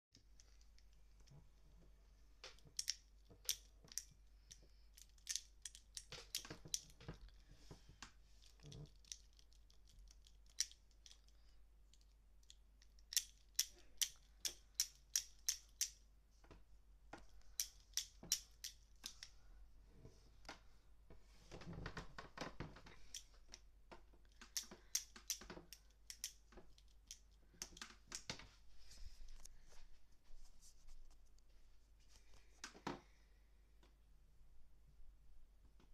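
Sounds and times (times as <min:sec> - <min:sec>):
pen mechanism clicking: 0:24.5 - 0:27.8
soft rustling: 0:26.4 - 0:33.2.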